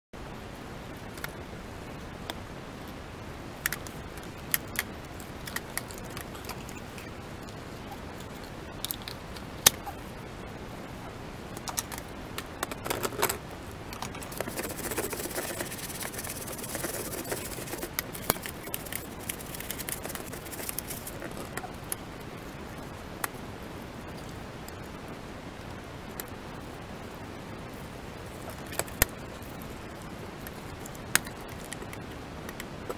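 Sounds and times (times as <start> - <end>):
steady hiss: 0.2 - 32.9
plastic parts clicking and knocking: 11.6 - 21.3.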